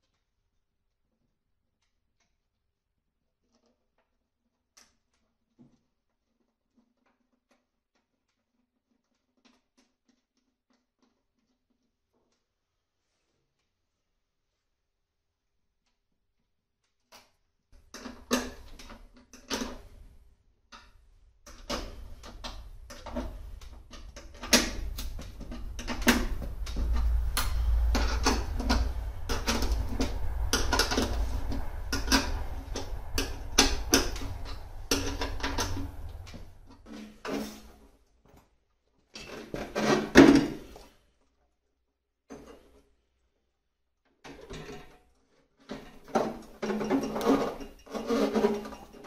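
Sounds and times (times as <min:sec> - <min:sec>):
low rumble: 0:22.1 - 0:36.8.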